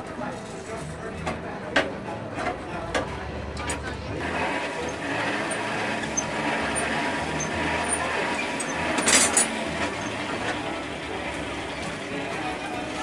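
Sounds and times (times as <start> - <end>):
metal tools clinking: 7.4 - 10.2.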